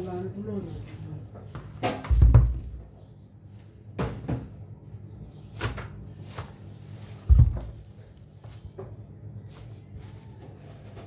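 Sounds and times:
vegetables knocking and rustling: 0:01.6 - 0:03.0, 0:05.5 - 0:10.2
steady low hum: 0:07.0 - 0:09.4
heavy thud: 0:07.3 - 0:07.9.

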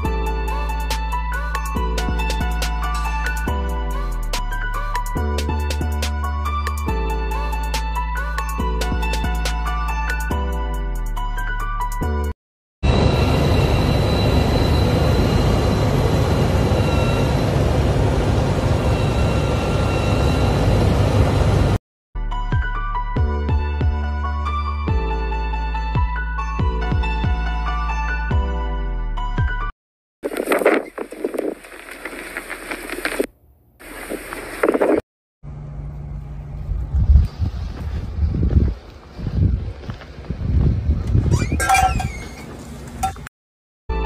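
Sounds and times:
faint high whine: 0:12.8 - 0:21.7
snow groomer engine and tracks: 0:12.8 - 0:21.8, 0:30.2 - 0:40.9
wind gusting on microphone: 0:30.2 - 0:33.2, 0:36.7 - 0:42.3.

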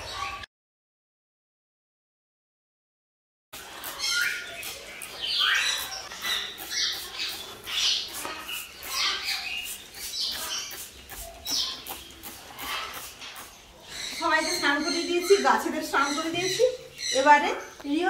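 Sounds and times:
parrots squawking and chirping: 0:03.6 - 0:17.9.

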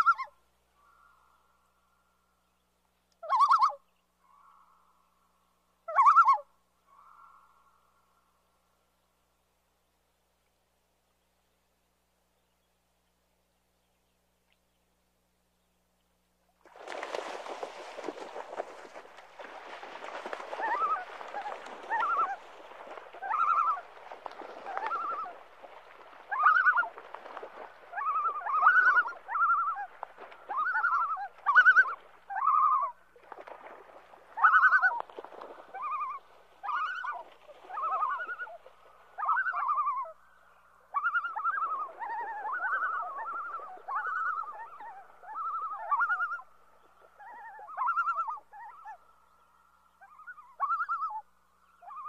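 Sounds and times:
loons calling: 0:19.5 - 0:33.0, 0:34.3 - 0:52.0.

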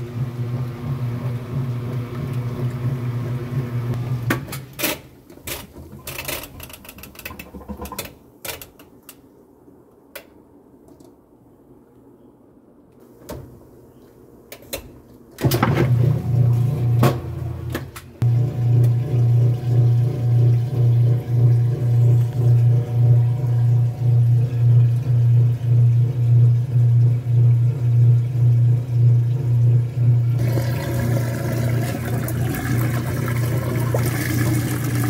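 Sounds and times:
washing machine motor humming: 0:00.0 - 0:04.5, 0:15.4 - 0:35.0.

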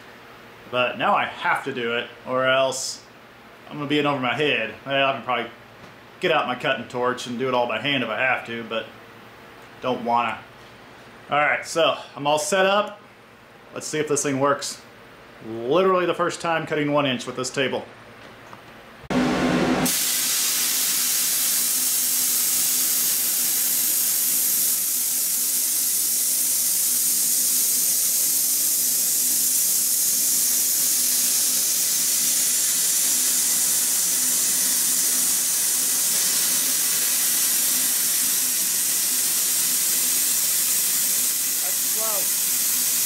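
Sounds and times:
plasma cutter hissing: 0:19.8 - 0:43.0.

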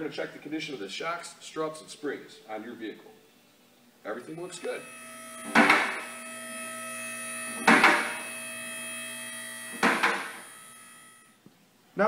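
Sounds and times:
hydraulic pump motor humming: 0:04.2 - 0:11.3.

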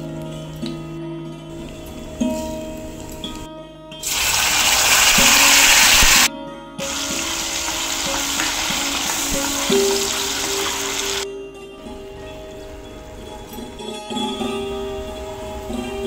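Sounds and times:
soft background music: 0:00.0 - 0:16.0
paste sizzling in hot oil: 0:04.0 - 0:11.2.

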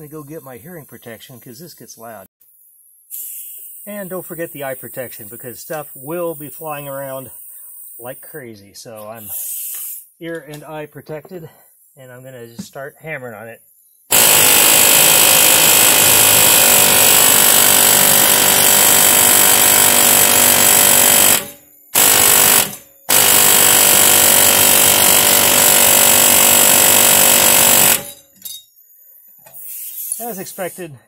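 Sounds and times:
air chisel hammering steel: 0:14.1 - 0:28.2.

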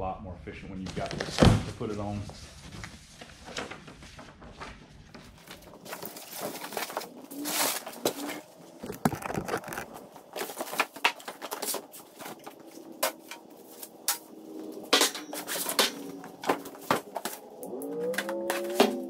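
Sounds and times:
cardboard rustling and scraping: 0:00.9 - 0:19.0
metal knocks and clatters: 0:10.5 - 0:17.4.

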